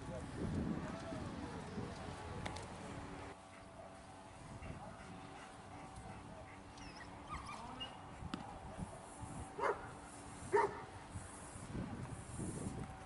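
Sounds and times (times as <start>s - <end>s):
dog whining yips: 6.8s - 8.0s
dog barking: 9.6s - 9.9s, 10.5s - 10.8s.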